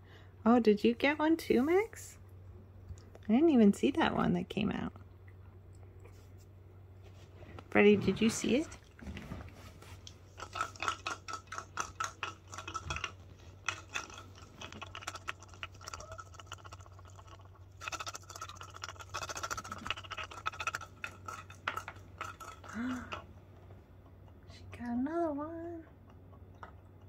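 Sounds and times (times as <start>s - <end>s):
cat treats rattling in plastic ball: 10.3s - 22.7s.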